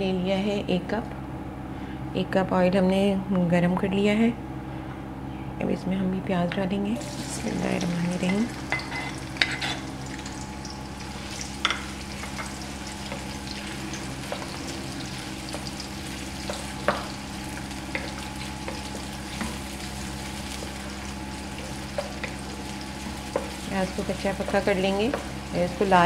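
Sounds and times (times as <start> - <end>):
onions sizzling in hot oil: 7.0 - 26.0
spatula tapping and scraping pan: 20.5 - 23.7.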